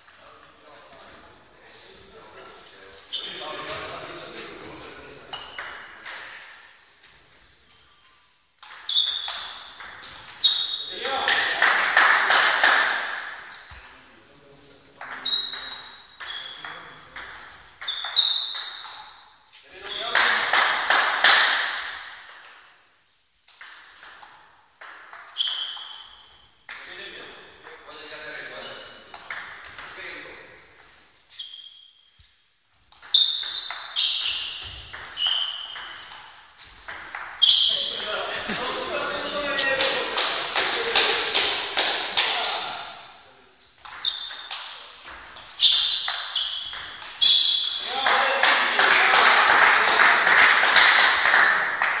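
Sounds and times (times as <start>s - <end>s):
table tennis ball hits and bounces: 5.3s - 6.6s, 8.6s - 13.9s, 15.0s - 19.2s, 19.8s - 22.7s, 23.4s - 26.9s, 29.1s - 30.0s, 32.9s - 37.8s, 43.8s - 48.2s.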